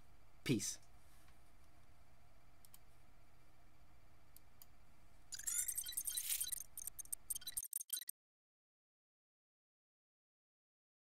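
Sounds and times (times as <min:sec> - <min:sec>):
soft clicks: 0:02.6 - 0:02.9
stuttering digital glitch effect: 0:05.3 - 0:08.1.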